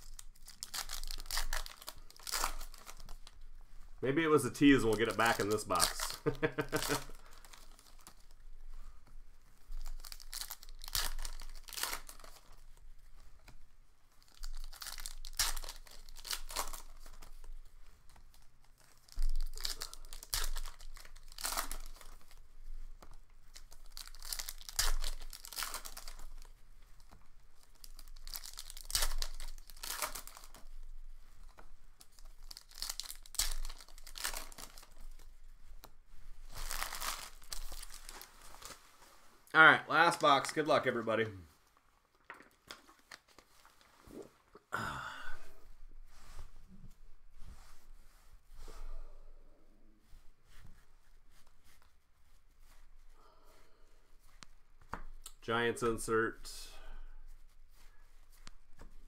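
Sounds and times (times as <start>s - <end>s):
plastic wrapping crinkling: 0.0s - 44.6s.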